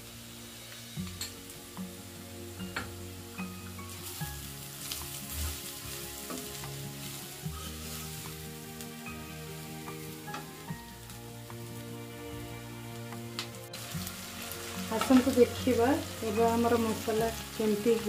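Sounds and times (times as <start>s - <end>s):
masala sizzling in hot oil: 0.0s - 18.0s
metal spatula scraping pan: 4.8s - 8.3s.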